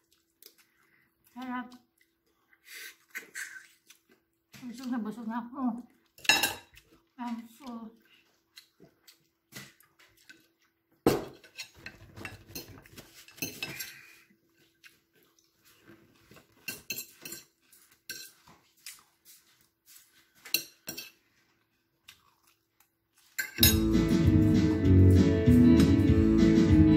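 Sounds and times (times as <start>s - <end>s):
dishes and cutlery clinking: 6.2s - 6.8s, 11.1s - 14.2s, 16.3s - 18.6s, 20.4s - 21.3s, 23.3s - 24.0s.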